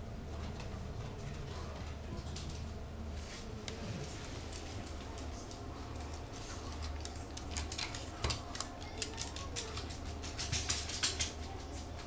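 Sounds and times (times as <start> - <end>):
low steady hum: 0.0 - 12.0
dog claws clicking on wooden floor: 4.5 - 11.8.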